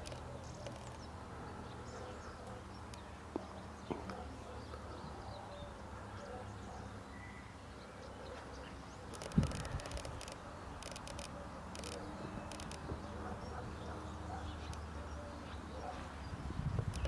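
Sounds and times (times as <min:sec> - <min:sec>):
light clicks: 0:09.1 - 0:12.8.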